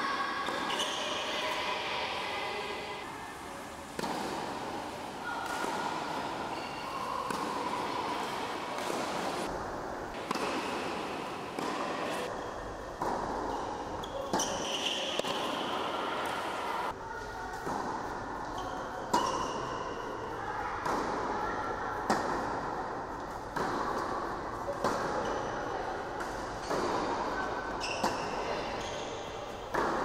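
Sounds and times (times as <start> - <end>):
racket hitting tennis ball: 3.9 - 12.3, 12.9 - 16.6, 22.0 - 25.4, 26.2 - 29.0, 29.7 - 30.0.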